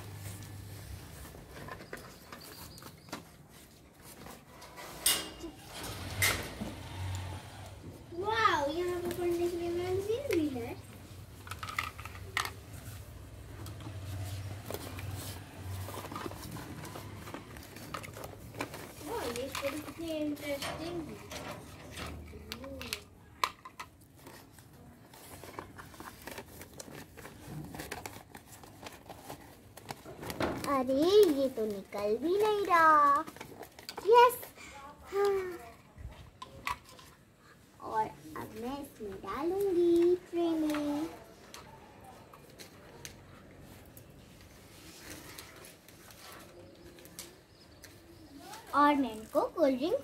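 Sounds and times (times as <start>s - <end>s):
rustling: 6.8s - 23.1s, 24.0s - 50.0s
plastic toy clatter: 11.4s - 12.9s, 14.7s - 34.4s, 35.2s - 37.2s.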